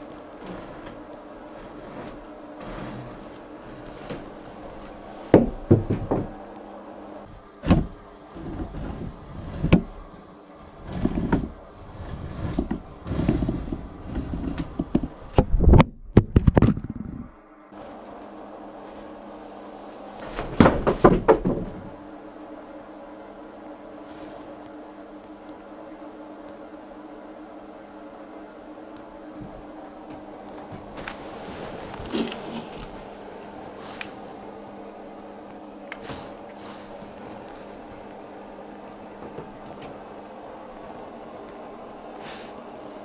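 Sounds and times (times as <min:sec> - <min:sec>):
irregular knocks and thumps: 0:05.3 - 0:06.4, 0:10.8 - 0:17.3, 0:20.4 - 0:22.0.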